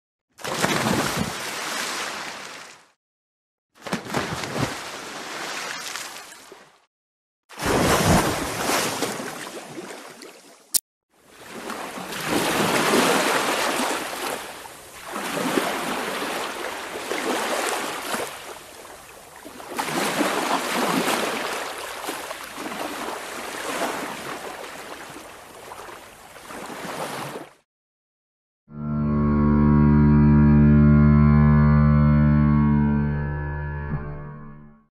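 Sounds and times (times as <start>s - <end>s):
ocean waves washing on shore: 11.3s - 27.5s.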